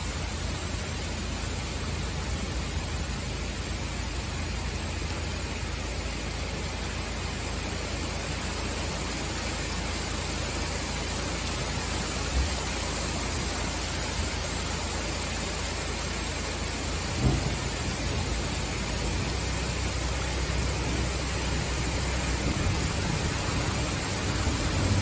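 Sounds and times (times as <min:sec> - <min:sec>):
heavy rain pouring: 0:00.0 - 0:25.0
low thump: 0:17.2 - 0:17.9.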